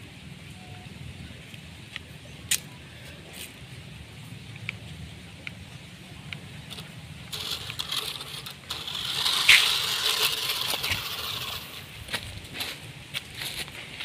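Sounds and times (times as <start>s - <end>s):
toy truck tyres crunching gravel: 6.6s - 14.0s.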